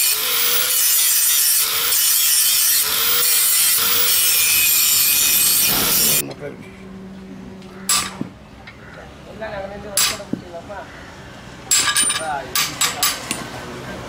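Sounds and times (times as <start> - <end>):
angle grinder grinding steel: 0.0 - 6.2.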